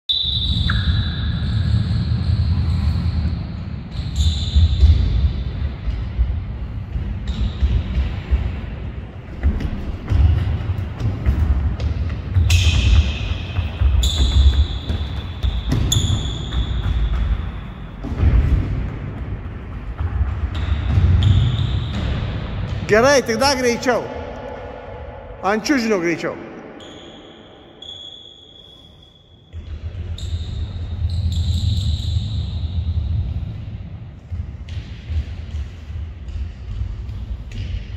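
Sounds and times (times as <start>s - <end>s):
sneaker squeals: 0.1s - 5.7s, 11.9s - 18.4s, 20.3s - 22.8s, 26.4s - 33.2s.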